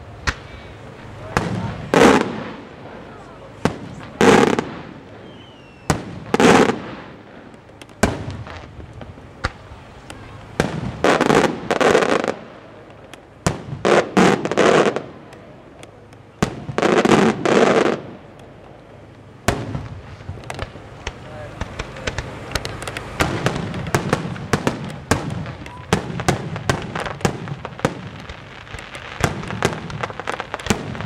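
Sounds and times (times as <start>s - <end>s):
firework shells bursting: 3.6s - 31.0s.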